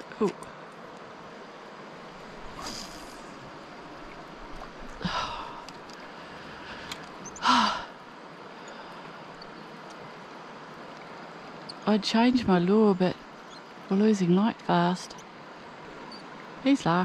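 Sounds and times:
background hiss: 0.0s - 17.0s
person exhaling heavily: 5.0s - 8.0s.

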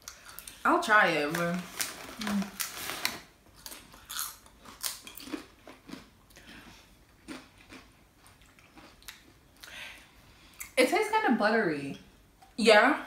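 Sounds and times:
corn chips crunching: 1.3s - 6.1s, 7.2s - 9.3s.

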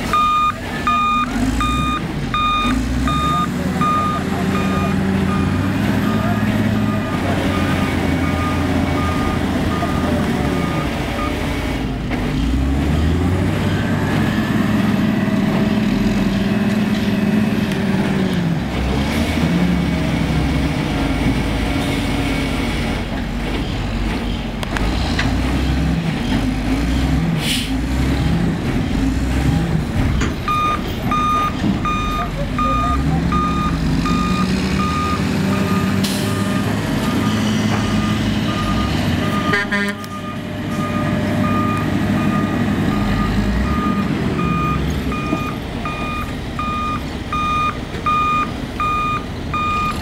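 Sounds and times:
heavy diesel engines under load: 0.0s - 50.0s
backup alarm beeping: 0.1s - 11.4s, 30.5s - 50.0s.

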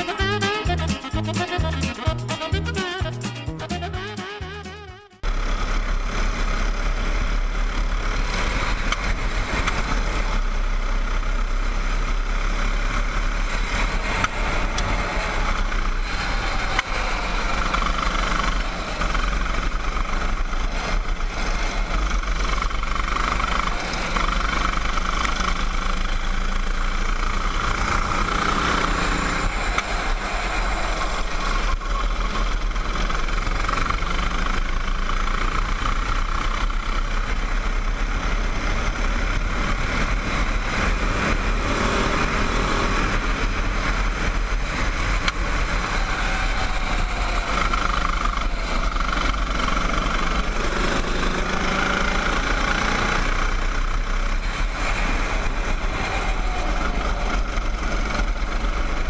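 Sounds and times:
go-kart engine running: 0.0s - 3.9s, 4.5s - 59.0s
steady low rumble: 29.3s - 33.4s.

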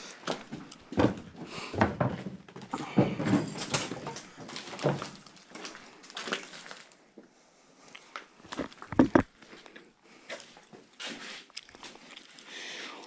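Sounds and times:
footsteps crunching on debris: 2.0s - 7.0s, 8.0s - 12.1s.

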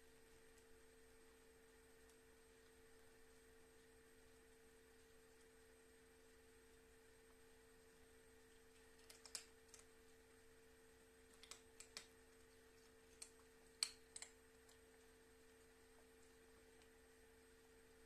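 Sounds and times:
faint sharp clicks: 8.7s - 9.9s, 11.3s - 12.2s, 12.8s - 14.8s.

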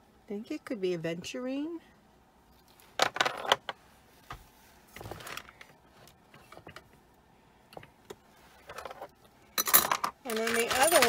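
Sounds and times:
jewelry clicking and rustling: 8.6s - 11.0s.

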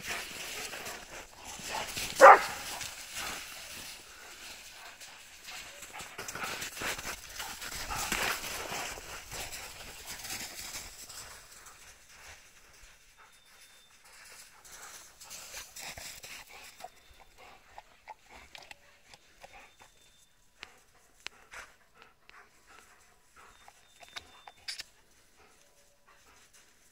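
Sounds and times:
footsteps crunching through snow: 0.0s - 12.8s.

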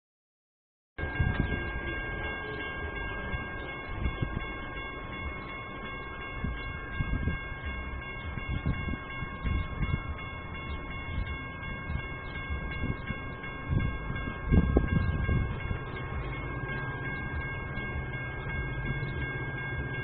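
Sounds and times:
wind on microphone: 1.0s - 2.0s, 3.8s - 5.4s, 6.2s - 19.5s
crossing warning bell ringing: 1.0s - 20.0s.

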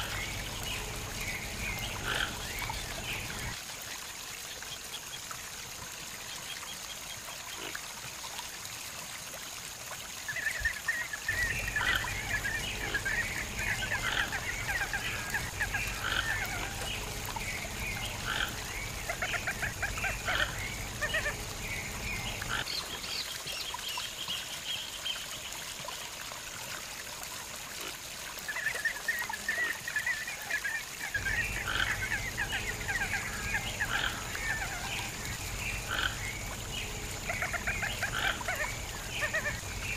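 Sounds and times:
toucans croaking: 1.6s - 3.6s, 11.3s - 22.7s, 31.2s - 39.9s.

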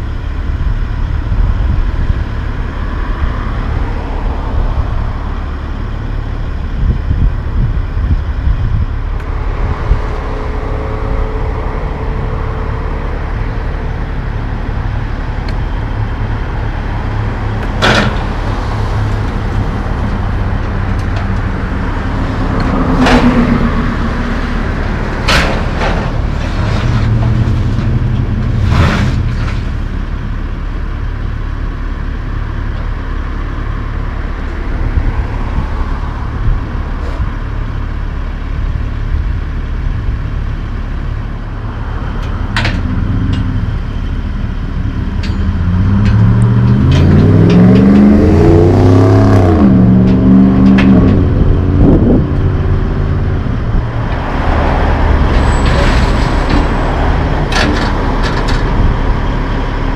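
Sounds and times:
engines running: 0.0s - 59.9s.

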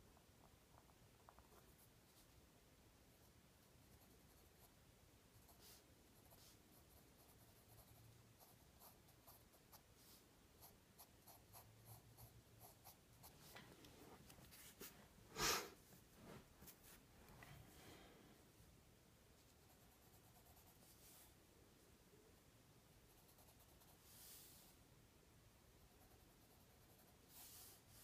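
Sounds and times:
pencil scratching on paper: 5.3s - 13.5s, 19.4s - 21.3s, 23.1s - 24.7s, 25.9s - 28.0s.

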